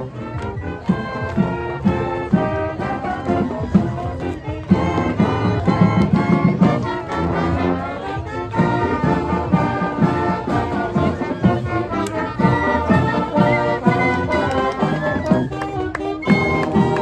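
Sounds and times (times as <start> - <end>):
marching band playing: 0.0 - 17.0
drum beat: 8.5 - 17.0.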